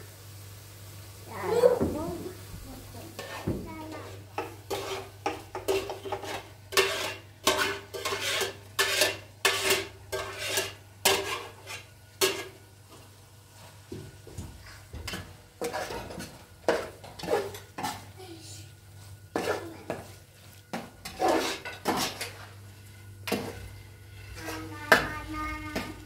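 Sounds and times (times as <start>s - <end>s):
spoon scraping metal pot: 3.2s - 12.6s, 15.6s - 18.0s, 19.3s - 22.6s, 23.2s - 25.9s.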